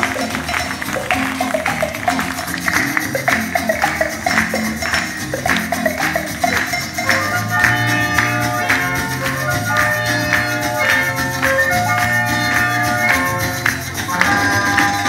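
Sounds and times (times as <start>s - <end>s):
dance music over loudspeaker: 0.0s - 9.1s.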